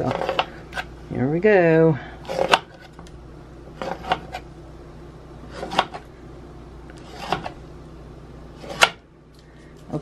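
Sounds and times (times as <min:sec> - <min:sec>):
knife cutting dough: 0:00.0 - 0:00.9, 0:02.2 - 0:03.1, 0:03.8 - 0:04.5, 0:05.5 - 0:06.1, 0:07.0 - 0:07.6, 0:08.6 - 0:09.0.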